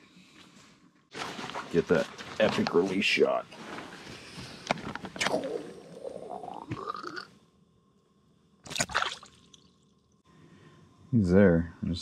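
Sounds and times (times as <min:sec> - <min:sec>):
fish splashing into water: 0:08.6 - 0:09.6.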